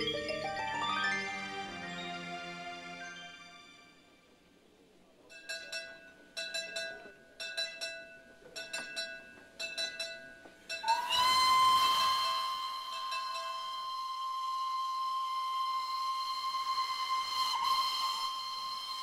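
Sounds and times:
steam locomotive whistle: 0:10.8 - 0:19.0.

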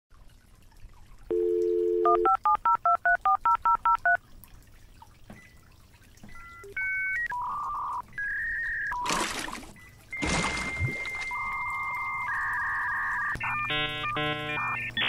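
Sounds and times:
telephone dial tone: 0:01.3 - 0:04.2
touch-tone keypad beeps: 0:01.3 - 0:04.2, 0:10.8 - 0:15.0.

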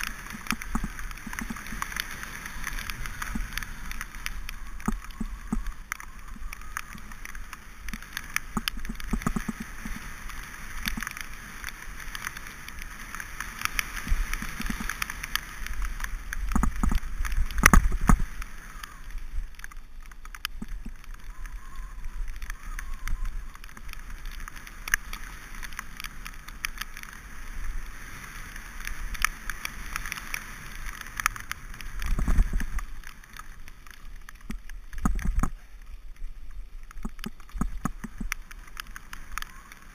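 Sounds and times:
wind noise on microphone: 0:00.0 - 0:19.6, 0:27.2 - 0:33.5, 0:34.1 - 0:39.9
bike tyres crunching on gravel: 0:00.0 - 0:39.9
sharp knocks from rough ground: 0:16.5 - 0:18.2.

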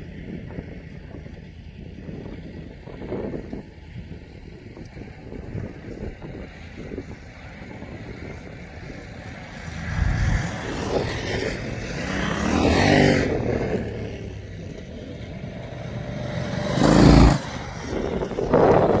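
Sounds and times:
motorcycles passing on gravel: 0:07.1 - 0:19.0
low engine rumble: 0:13.2 - 0:19.0.

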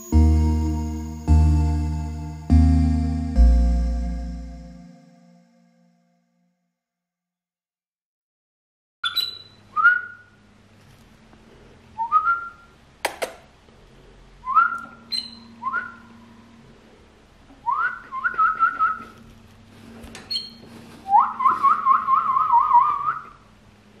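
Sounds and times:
canary singing: 0:09.0 - 0:10.1, 0:14.7 - 0:16.1.

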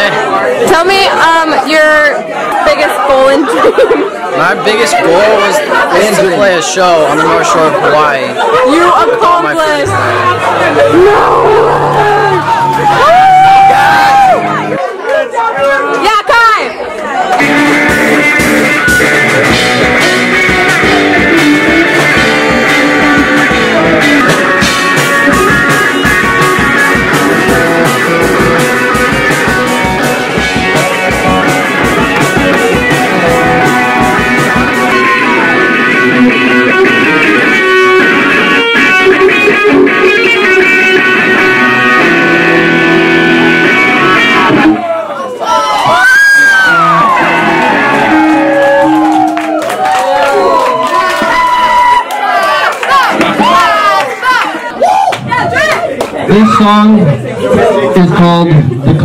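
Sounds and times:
rock music: 0:06.2 - 0:14.8, 0:17.3 - 0:44.8, 0:46.1 - 0:49.8
bass guitar: 0:07.0 - 0:14.9, 0:17.3 - 0:45.0, 0:45.8 - 0:49.9
electric guitar: 0:09.5 - 0:14.9, 0:17.2 - 0:45.0, 0:45.8 - 0:52.1
drum beat: 0:17.4 - 0:40.2.

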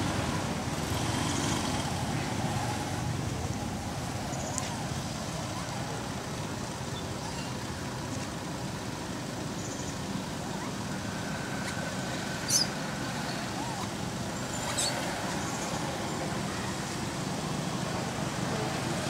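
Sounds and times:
outdoor background rumble: 0:00.0 - 0:19.0.

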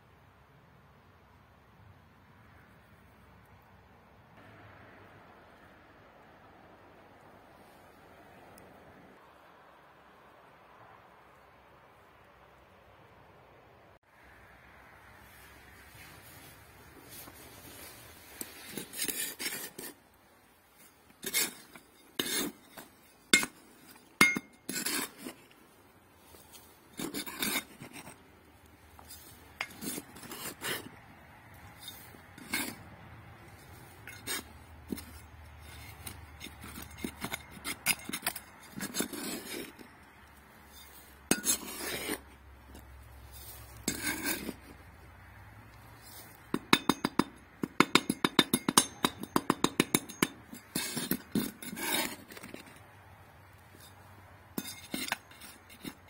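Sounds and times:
trowel scraping stony soil: 0:15.2 - 0:45.2, 0:45.8 - 0:56.0
blade clinking against stones: 0:21.2 - 0:25.4, 0:34.0 - 0:39.8, 0:40.6 - 0:42.2, 0:46.5 - 0:52.7, 0:53.8 - 0:56.0.

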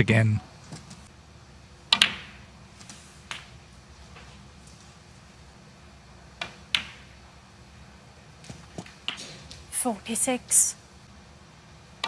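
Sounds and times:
snooker balls clicking: 0:01.9 - 0:04.8, 0:06.3 - 0:07.2.

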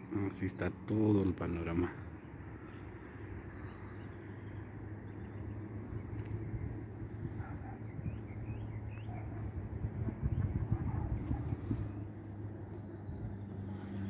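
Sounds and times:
low outdoor rumble: 0:00.0 - 0:14.0
bird chirps: 0:07.6 - 0:09.5, 0:11.4 - 0:14.0.

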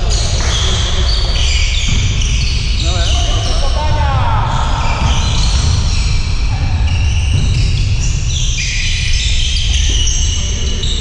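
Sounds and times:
players' voices: 0:00.0 - 0:08.8
basketball bouncing on court: 0:00.0 - 0:10.9.

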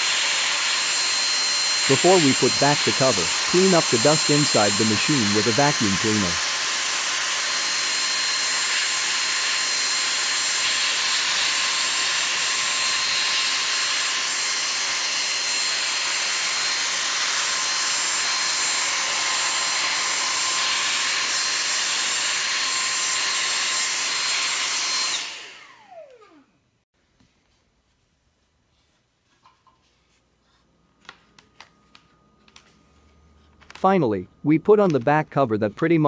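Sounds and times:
vacuum cleaner whine: 0:00.0 - 0:26.7.

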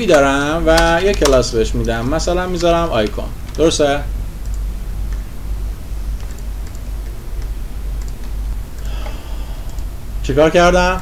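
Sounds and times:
computer keyboard keystrokes: 0:00.0 - 0:03.8, 0:06.2 - 0:09.9
steady low hum: 0:00.0 - 0:11.0.

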